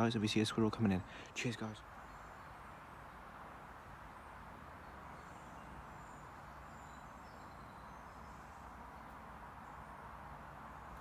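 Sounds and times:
soft hiss: 0.0 - 11.0
faint bird chirps: 0.6 - 3.3, 4.0 - 10.0.

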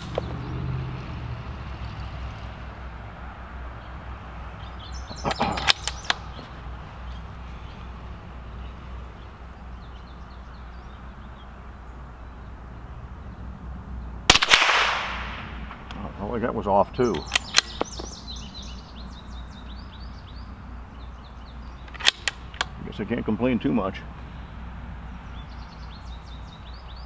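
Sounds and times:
rifle bolt metallic clicks: 5.3 - 6.3, 17.1 - 18.1, 21.8 - 22.8
rifle shot: 14.3 - 15.9.

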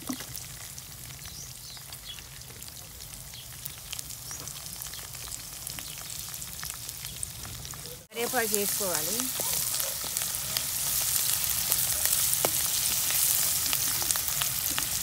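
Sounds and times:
food frying in hot oil: 0.0 - 15.0.

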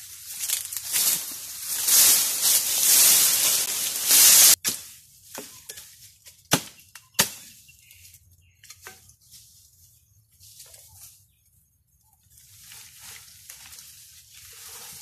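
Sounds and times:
dry brush rustling and crackling: 0.0 - 6.5, 12.3 - 15.0.

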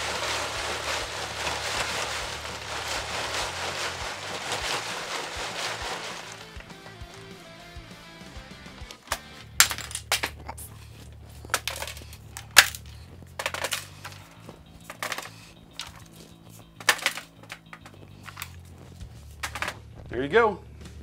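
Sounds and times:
plastic pieces clattering in trays: 0.0 - 7.4, 9.0 - 10.7, 11.5 - 18.6, 19.4 - 19.8
background music: 0.1 - 21.0.

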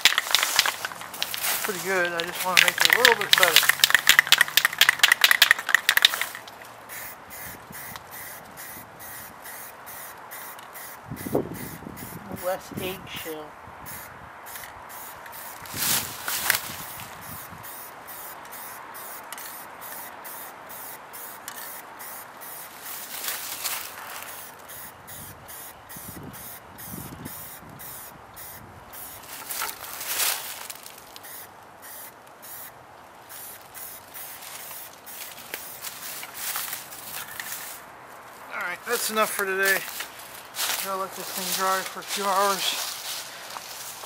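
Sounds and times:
spray-paint can hissing: 0.0 - 12.7, 13.9 - 30.0, 31.2 - 32.7, 33.3 - 37.8.

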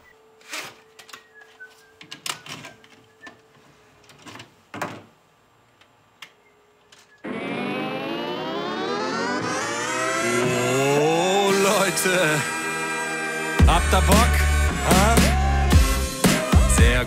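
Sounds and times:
loud buzzing: 7.2 - 16.5.

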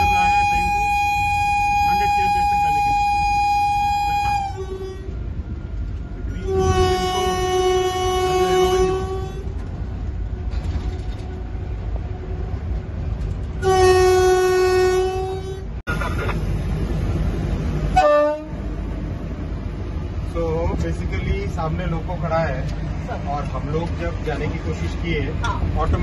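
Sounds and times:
train air horn blasts: 0.0 - 5.2, 6.3 - 9.5, 13.6 - 15.7, 17.9 - 18.6
low rumble of running train: 0.0 - 26.0.

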